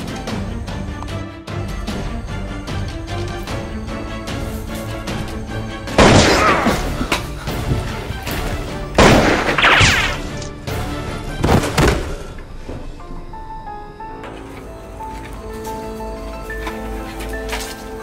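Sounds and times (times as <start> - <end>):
background music: 0.0 - 18.0
gunshot sound effects with ringing: 6.0 - 7.0, 9.0 - 10.3.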